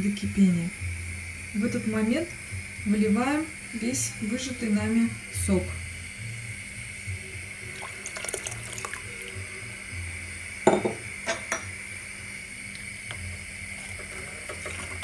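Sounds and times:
liquid pouring and splashing: 0:07.7 - 0:09.3
glass clinking against pot: 0:10.7 - 0:11.7
spoon stirring milk: 0:13.8 - 0:15.0.

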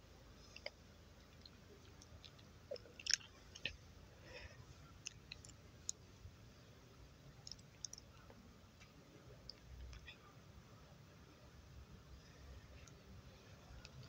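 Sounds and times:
faint sharp clicks and ticks: 0:00.4 - 0:03.8, 0:04.8 - 0:06.1, 0:07.3 - 0:10.2, 0:12.6 - 0:14.0.

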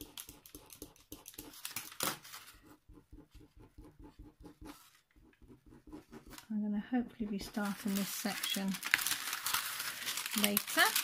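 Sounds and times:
craft knife scoring canvas: 0:00.0 - 0:08.0.

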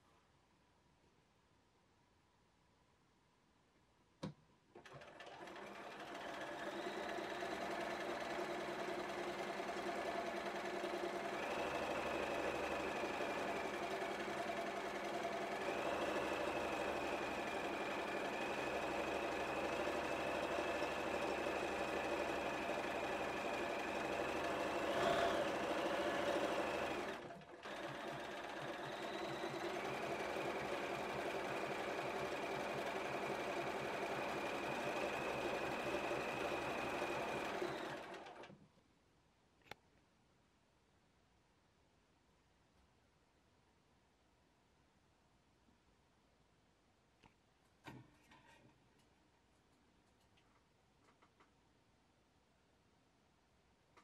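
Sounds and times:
sewing machine stitching: 0:04.7 - 0:38.6.

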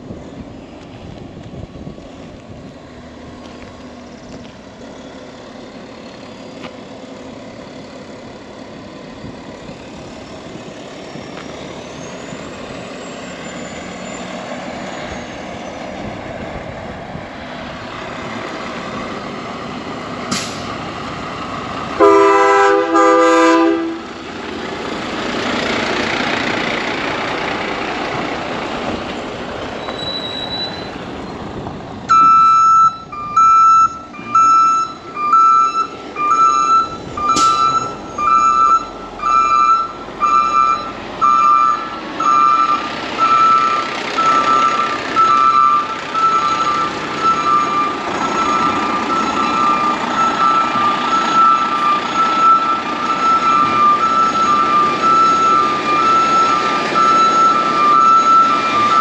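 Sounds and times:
diesel truck engine running: 0:00.0 - 0:59.0
truck train horn blasts: 0:22.0 - 0:24.1.

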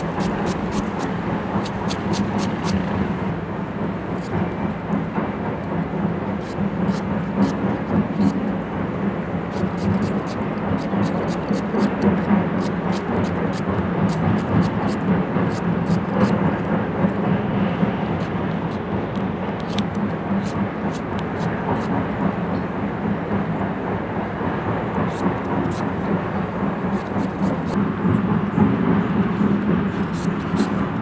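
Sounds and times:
knife cutting mango: 0:00.0 - 0:03.0, 0:06.4 - 0:08.4, 0:09.5 - 0:16.4, 0:30.1 - 0:30.7.

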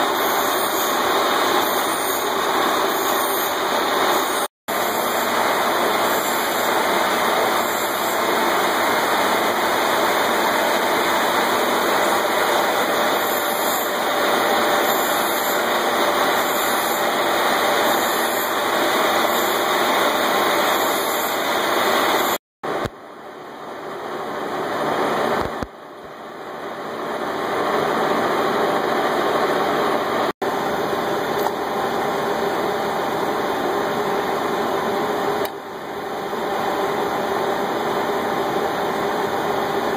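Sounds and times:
metal lathe running: 0:00.0 - 0:22.4.

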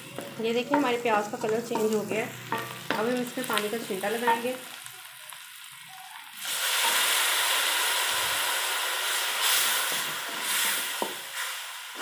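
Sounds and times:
hissing sizzle: 0:00.0 - 0:12.0
water splashing into hot oil: 0:06.4 - 0:11.3.

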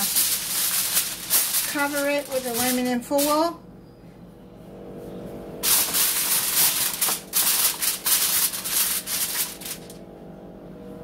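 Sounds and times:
aluminum foil crinkling: 0:00.0 - 0:03.6, 0:05.6 - 0:10.0.

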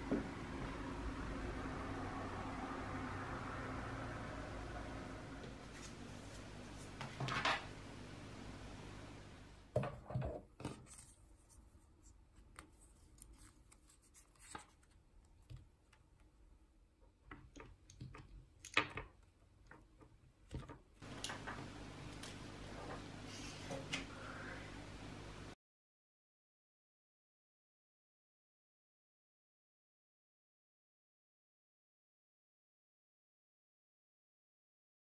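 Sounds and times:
paper stickers rustling: 0:12.4 - 0:15.7.

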